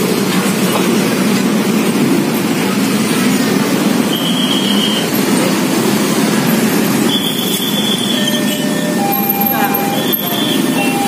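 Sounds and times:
vehicles rumbling over crossing: 0:00.0 - 0:11.0
high-pitched squeals: 0:06.8 - 0:11.0.

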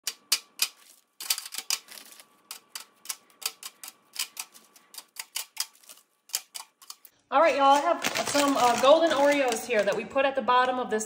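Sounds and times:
cookies clicking on foil pan: 0:00.1 - 0:10.8
foil rustling: 0:00.8 - 0:02.8, 0:06.8 - 0:10.1.

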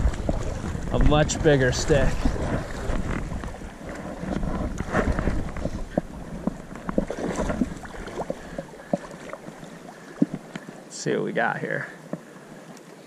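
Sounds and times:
wind buffeting microphone: 0:00.0 - 0:08.8
river water rushing: 0:00.0 - 0:13.0.

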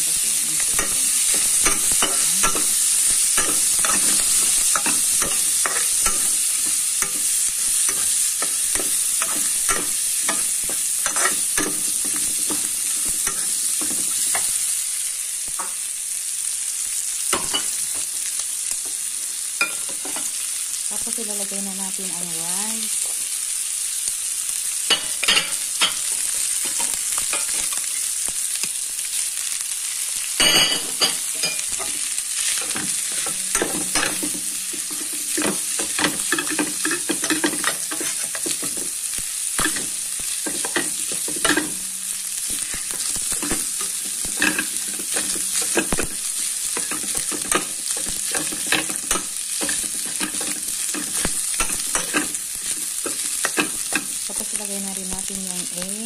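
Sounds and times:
oil sizzling in a frying pan: 0:00.0 - 0:56.0
metal spatula scraping a pan: 0:00.6 - 0:14.7, 0:30.8 - 0:54.4.

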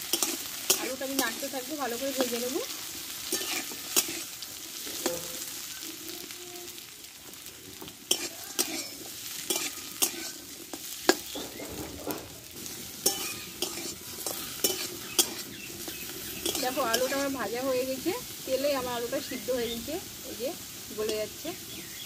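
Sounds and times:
metal spatula scraping pan: 0:00.0 - 0:05.7, 0:07.7 - 0:19.5
potatoes sizzling in oil: 0:00.0 - 0:22.0.

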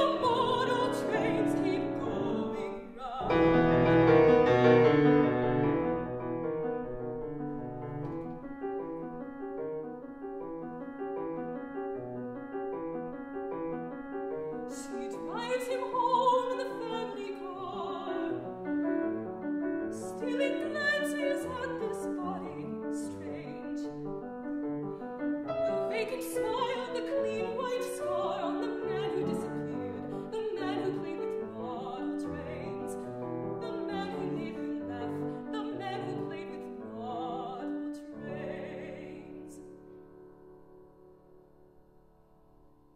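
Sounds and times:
woman singing: 0:00.0 - 0:03.9, 0:14.7 - 0:18.5, 0:19.9 - 0:23.9, 0:25.6 - 0:39.8
grand piano: 0:00.0 - 0:42.9.

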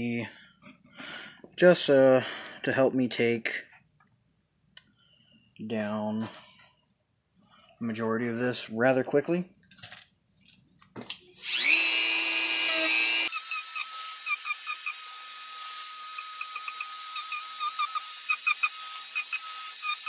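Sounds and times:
rotary tool whining: 0:11.4 - 0:20.0.

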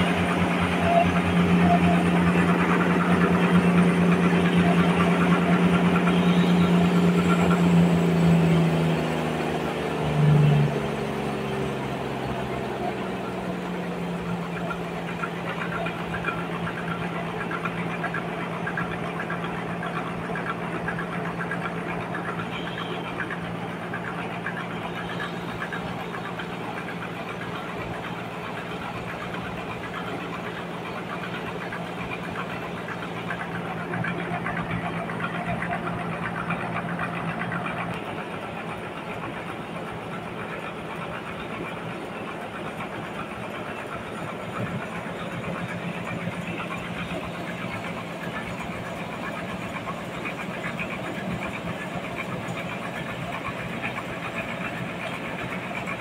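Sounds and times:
sawmill machinery humming: 0:00.0 - 0:56.0.

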